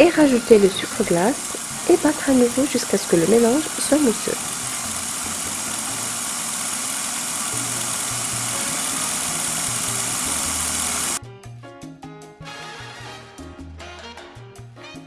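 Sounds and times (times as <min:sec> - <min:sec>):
food processor motor running: 0:00.0 - 0:11.2.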